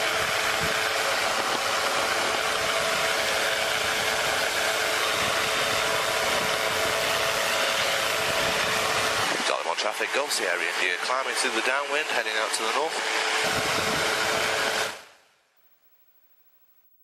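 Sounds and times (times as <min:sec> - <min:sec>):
light aircraft engine and propeller: 0:00.0 - 0:15.1
wind rushing over microphone: 0:05.1 - 0:09.5, 0:13.4 - 0:14.8.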